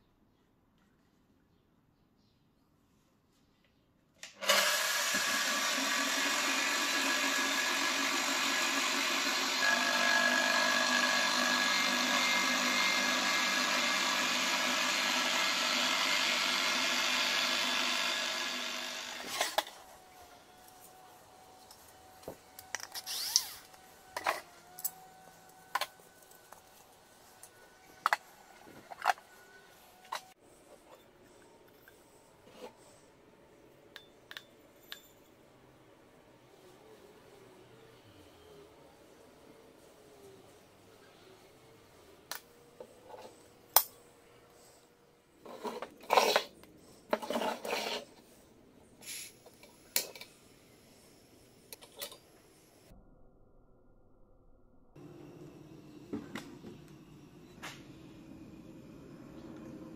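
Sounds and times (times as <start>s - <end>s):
angle grinder running: 4.4s - 21.0s, 22.9s - 24.5s.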